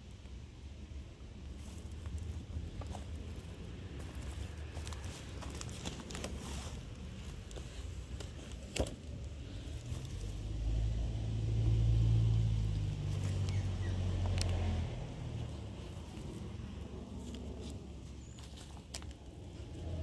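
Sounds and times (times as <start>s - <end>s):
low motor rumble: 0.0s - 20.0s.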